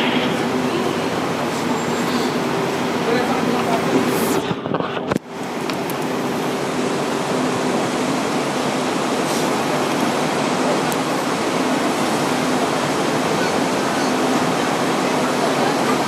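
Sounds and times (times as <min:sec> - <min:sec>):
tram noise: 0:00.0 - 0:16.0.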